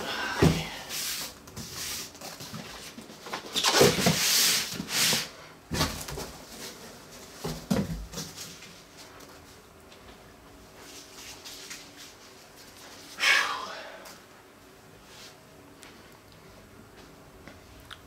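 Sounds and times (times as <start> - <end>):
cardboard boxes scraping and knocking: 1.6 - 8.6.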